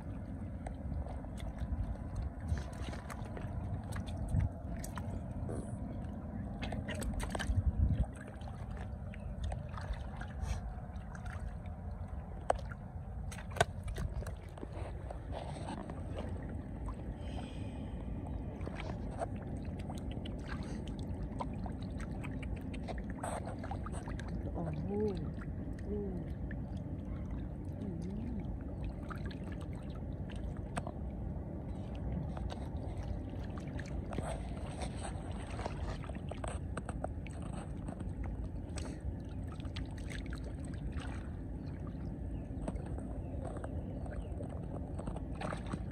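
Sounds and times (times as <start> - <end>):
splashing in shallow muddy water: 0.0 - 45.9.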